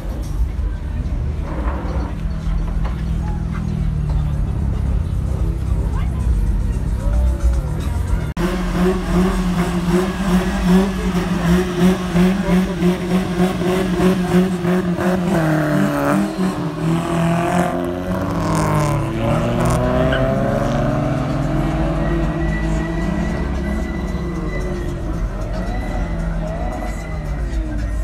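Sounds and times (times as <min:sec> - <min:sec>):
car engine revving hard: 0:08.4 - 0:26.3.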